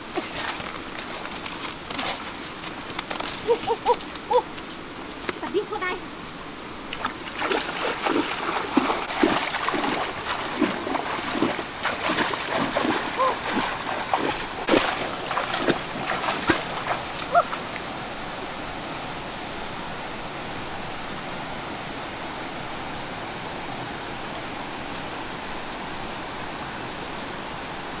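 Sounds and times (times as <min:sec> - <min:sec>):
splashing steps in a stream: 0:00.0 - 0:05.6, 0:06.3 - 0:18.4
stream water rushing: 0:00.0 - 0:28.0.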